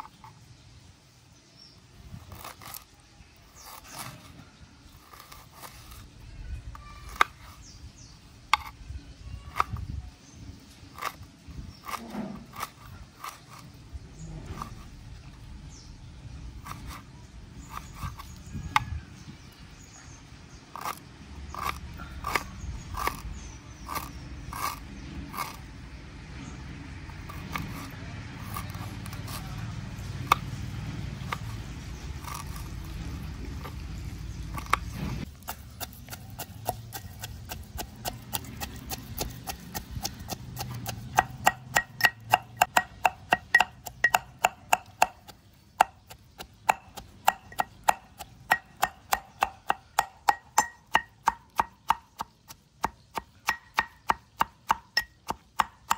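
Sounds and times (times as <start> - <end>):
knife chopping on wooden board: 11.8 - 13.6, 20.8 - 24.8, 32.2 - 32.7, 34.5 - 55.9
pounding in iron mortar: 34.5 - 55.9.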